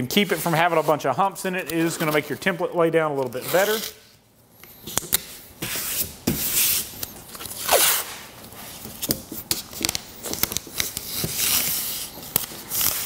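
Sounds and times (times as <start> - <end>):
tape crinkling and rubbing: 3.2 - 13.0
masking tape ripping off roll: 7.4 - 8.3.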